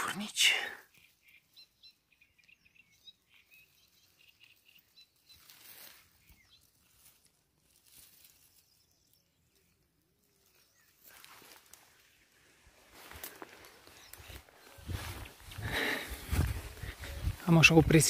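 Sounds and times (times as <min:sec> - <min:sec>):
faint bird chirps: 0:00.8 - 0:07.2, 0:07.8 - 0:15.6
soft rustles: 0:05.2 - 0:09.6, 0:10.2 - 0:18.0.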